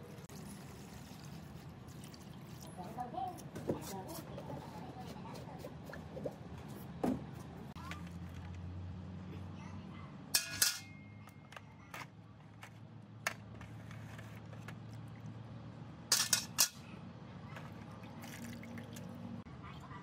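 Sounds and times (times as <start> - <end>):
saw blade clinking on metal tray: 10.4 - 11.1.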